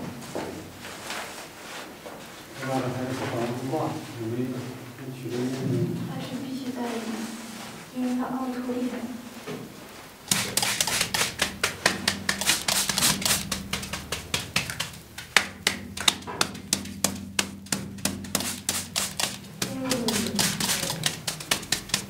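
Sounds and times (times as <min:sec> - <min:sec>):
rapid sharp taps on paper: 0:10.3 - 0:22.0.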